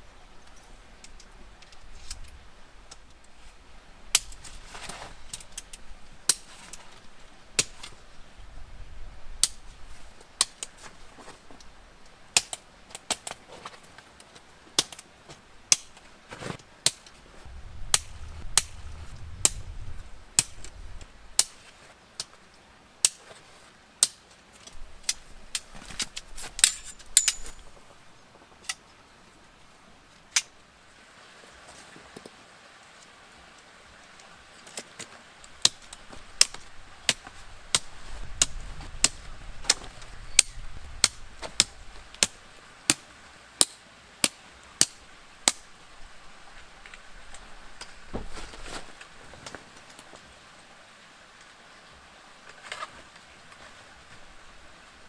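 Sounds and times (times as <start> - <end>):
metal poles clicking and clinking: 24.1 - 27.8.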